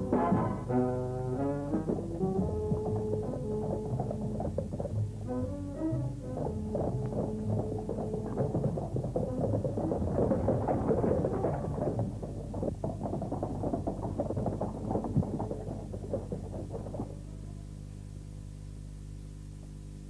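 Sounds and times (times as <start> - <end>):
dense clattering: 0.0 - 17.4
low electrical hum: 0.0 - 20.0.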